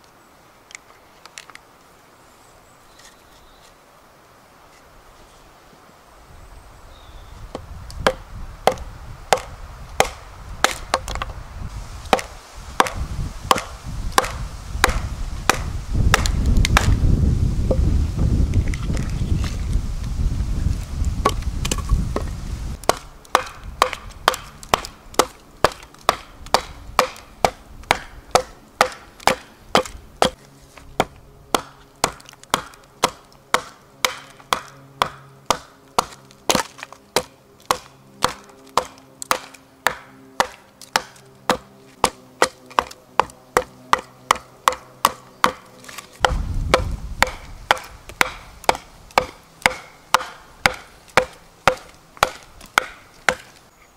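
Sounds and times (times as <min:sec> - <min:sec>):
hatchet chopping log: 0:07.5 - 0:11.3, 0:12.1 - 0:17.0, 0:21.2 - 0:30.4, 0:31.0 - 0:53.6
low rumble: 0:46.2 - 0:48.1.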